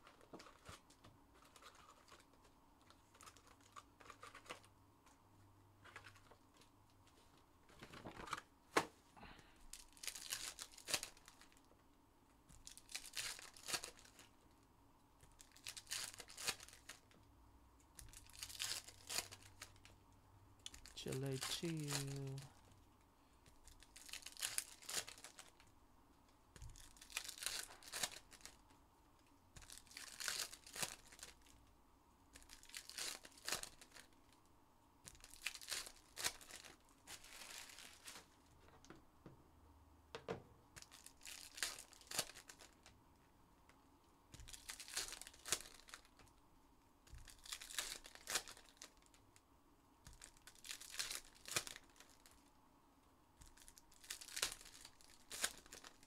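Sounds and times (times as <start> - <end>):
wrappers tearing and crinkling: 0.0 - 4.7, 9.7 - 11.7, 12.6 - 14.4, 15.3 - 17.2, 18.0 - 19.9, 20.6 - 22.5, 23.5 - 25.7, 26.6 - 28.6, 29.6 - 31.6, 32.3 - 34.4, 35.1 - 38.4, 40.8 - 42.9, 44.4 - 46.4, 47.1 - 49.2, 50.1 - 52.5, 53.4 - 56.0.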